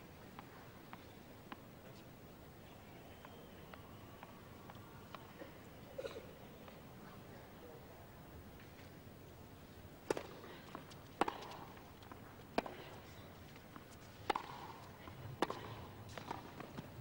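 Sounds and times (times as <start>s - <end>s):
tennis ball bouncing: 10.0s - 13.0s, 13.7s - 17.0s
tennis racket hitting ball: 10.1s - 11.8s, 14.2s - 16.9s.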